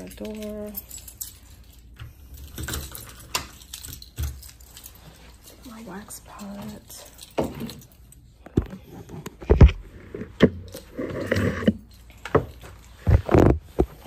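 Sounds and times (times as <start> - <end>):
rustling and knocking: 8.5 - 14.0.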